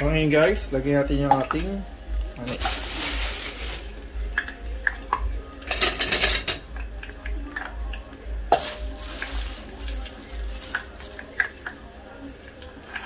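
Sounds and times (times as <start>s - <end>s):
garlic sizzling in hot oil: 0.0s - 13.0s
plastic bag crinkling: 2.4s - 4.6s, 8.5s - 11.8s.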